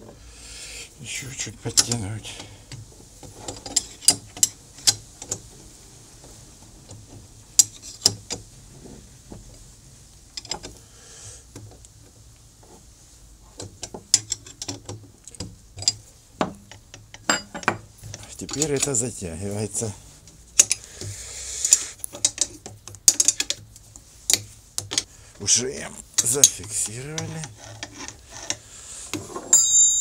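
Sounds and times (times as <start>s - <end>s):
wrench clinking against metal: 29.5s - 30.0s.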